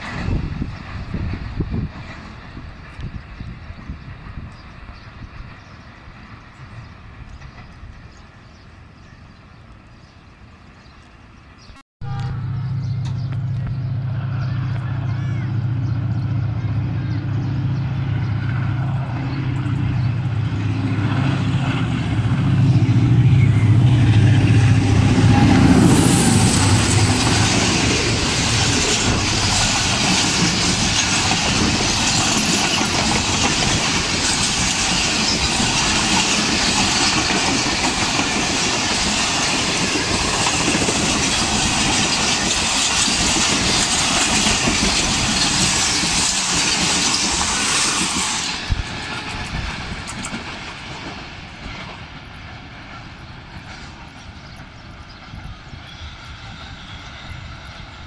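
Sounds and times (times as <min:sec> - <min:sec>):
train wheels rushing on rails: 0:00.0 - 0:11.6, 0:12.8 - 0:58.0
locomotive engine drone: 0:12.0 - 0:38.9.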